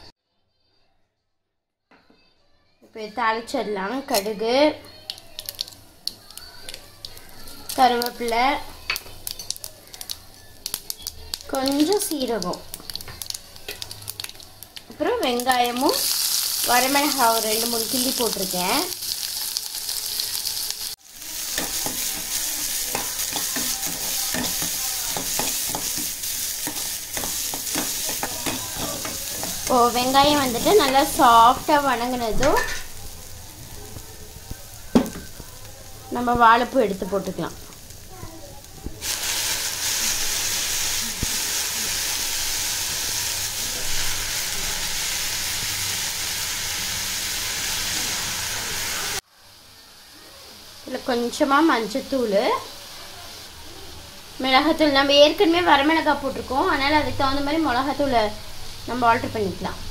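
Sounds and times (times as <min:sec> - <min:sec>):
onions frying and sizzling: 0:03.1 - 0:59.9.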